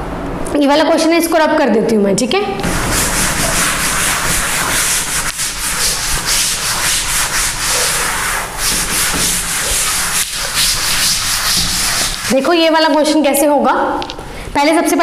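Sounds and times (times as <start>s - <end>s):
cloth rubbing on chalkboard: 2.6s - 13.2s.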